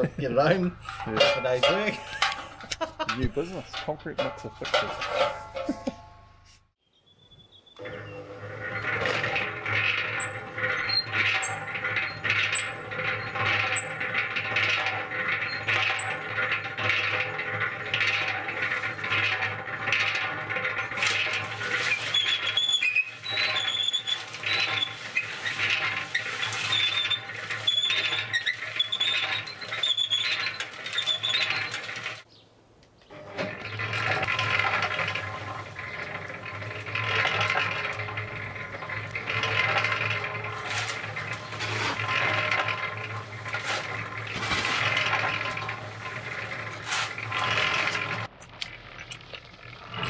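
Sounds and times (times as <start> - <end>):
drive belt squeaking: 0.0 - 6.5, 7.8 - 32.2, 33.0 - 50.0
concrete mixer motor hum: 0.0 - 6.7, 7.8 - 32.3, 33.1 - 50.0
sharp clicks and rattles: 0.0 - 6.8, 7.8 - 50.0.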